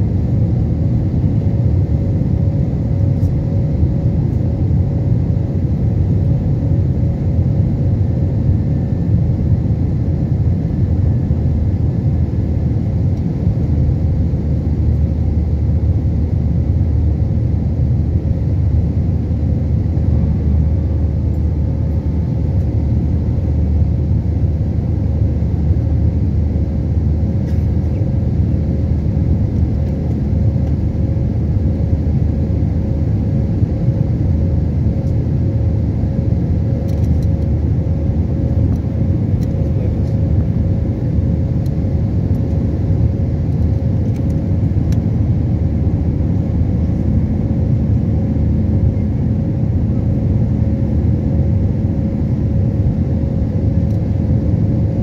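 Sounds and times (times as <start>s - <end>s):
aircraft cabin engine rumble: 0.0s - 55.0s
steady hum: 0.0s - 55.0s.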